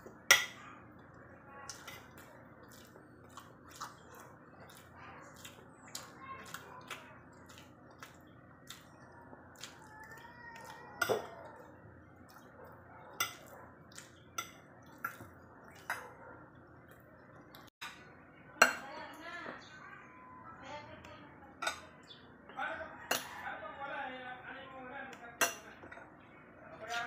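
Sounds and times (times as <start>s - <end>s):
soft wet eating sounds: 0.0s - 18.2s
cutlery clinking on ceramic plates: 0.3s - 0.6s, 10.6s - 11.4s, 13.1s - 13.5s, 14.3s - 16.2s, 21.6s - 22.0s, 23.0s - 23.4s, 25.4s - 26.1s.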